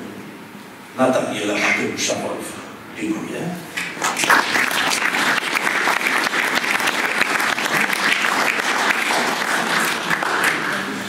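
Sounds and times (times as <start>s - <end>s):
audience applauding: 3.9s - 11.0s.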